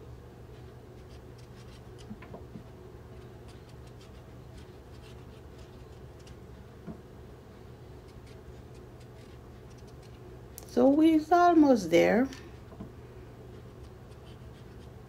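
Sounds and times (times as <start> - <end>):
steady low hum: 0.0 - 15.0
knife scratching cuts: 0.9 - 6.4, 8.0 - 10.2, 13.6 - 15.0.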